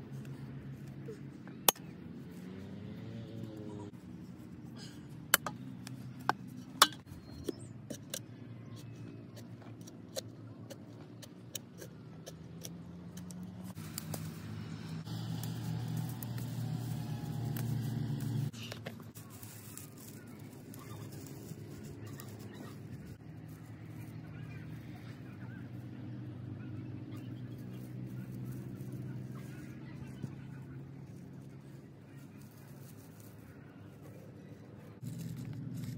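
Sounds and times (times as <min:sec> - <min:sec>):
fern fronds rustling and breaking: 0:13.8 - 0:23.0.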